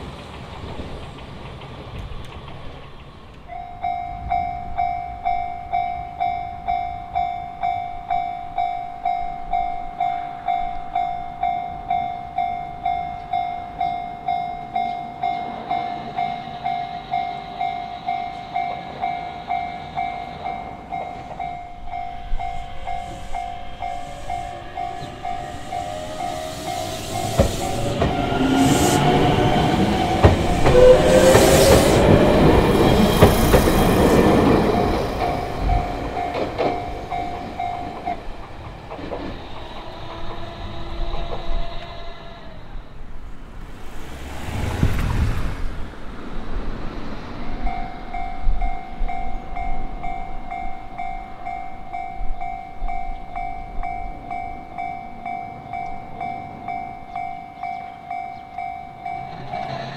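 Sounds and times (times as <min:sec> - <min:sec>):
train running noise: 0:00.0 - 0:59.9
level crossing bell clanging: 0:03.5 - 0:33.2, 0:34.1 - 0:38.6.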